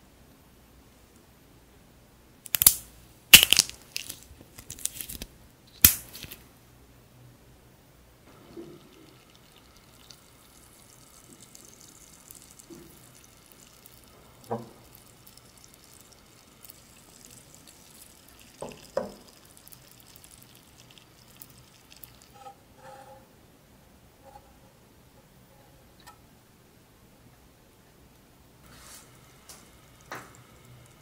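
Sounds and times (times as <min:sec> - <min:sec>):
sugar syrup bubbling and crackling: 0:08.3 - 0:22.7, 0:29.0 - 0:31.0.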